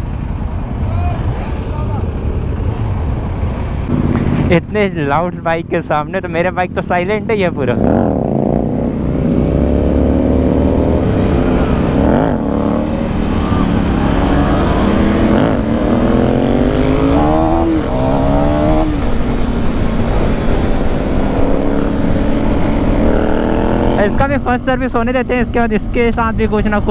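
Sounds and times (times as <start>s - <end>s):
low wind rumble: 0.0s - 26.9s
superbikes: 0.0s - 26.9s
motorcycle engine accelerating: 3.8s - 4.8s, 7.5s - 24.6s.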